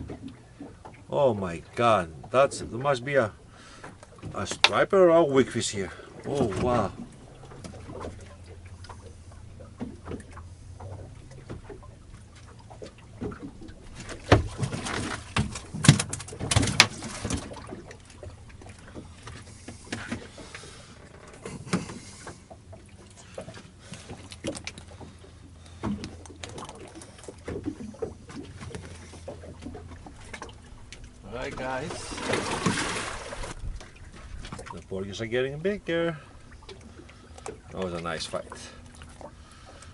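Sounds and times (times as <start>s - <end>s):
knocks and clatter on boat: 0.0s - 39.9s
outboard motor idling: 0.0s - 39.9s.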